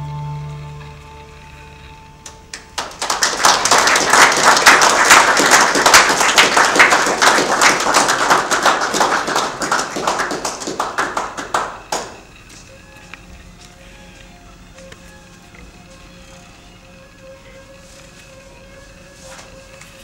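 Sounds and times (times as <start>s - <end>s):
crowd clapping: 2.2s - 15.2s.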